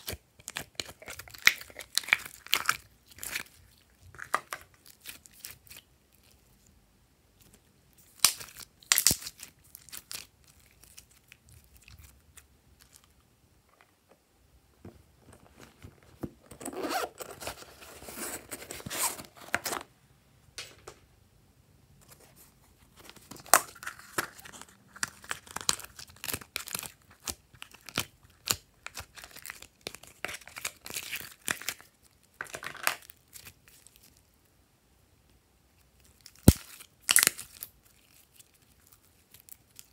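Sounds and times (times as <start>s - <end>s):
sticky slime popping and crackling: 8.0s - 12.9s, 36.3s - 37.7s.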